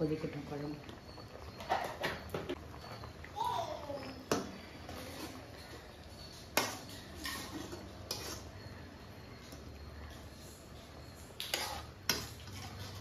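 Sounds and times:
ladle scraping pan: 0:04.6 - 0:08.8, 0:10.1 - 0:13.0.

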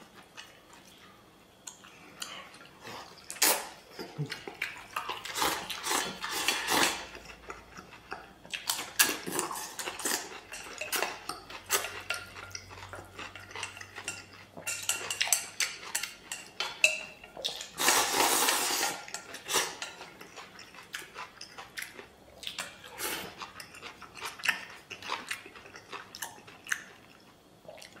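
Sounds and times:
person slurping: 0:17.6 - 0:19.8.

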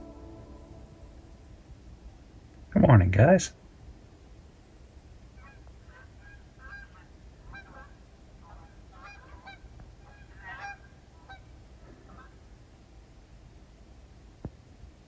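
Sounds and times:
low rumble: 0:00.0 - 0:04.0.

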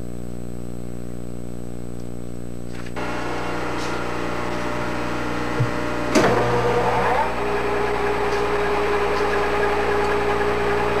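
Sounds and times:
lathe machine hum: 0:03.0 - 0:11.0
lathe tool cutting metal: 0:03.0 - 0:11.0.

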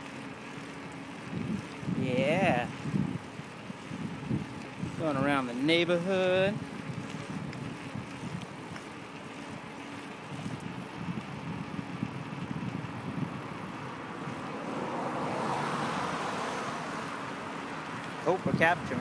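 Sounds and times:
bicycle rumble: 0:00.0 - 0:19.0
wind buffeting microphone: 0:01.2 - 0:19.0.

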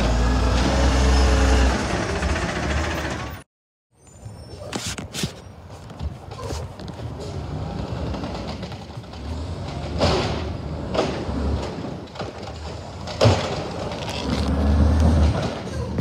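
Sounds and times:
diesel engine under load: 0:00.0 - 0:03.5, 0:07.0 - 0:16.0
trash cart banging: 0:07.2 - 0:16.0.

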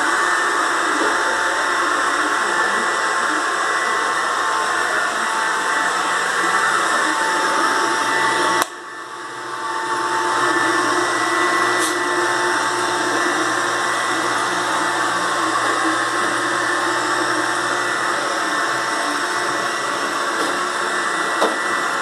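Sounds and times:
robot vacuum whirring: 0:00.0 - 0:22.0.

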